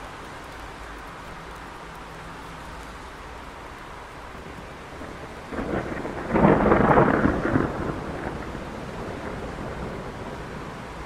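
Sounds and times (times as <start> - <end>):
steady rain: 0.0 - 11.0
thunderclap rumble: 4.4 - 11.0.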